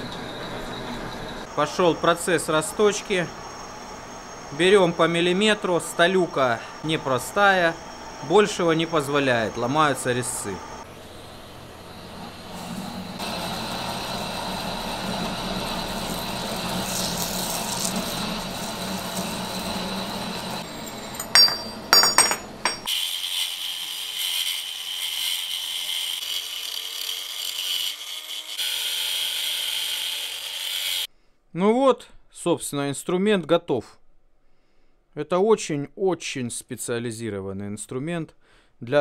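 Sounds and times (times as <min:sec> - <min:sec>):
angle grinder whining: 0:03.0 - 0:21.8
metal lathe cutting steel: 0:03.0 - 0:21.8, 0:22.6 - 0:31.1.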